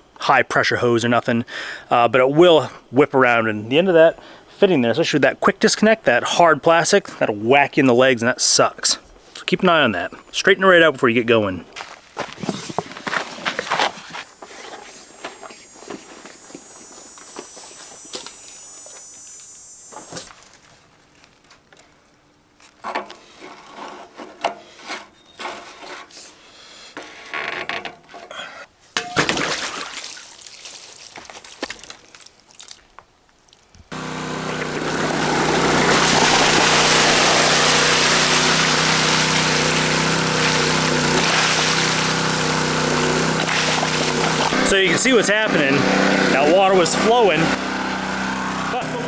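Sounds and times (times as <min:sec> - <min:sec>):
water pump engine running: 0:33.9 - 0:49.0
water rushing from hose: 0:33.9 - 0:49.0.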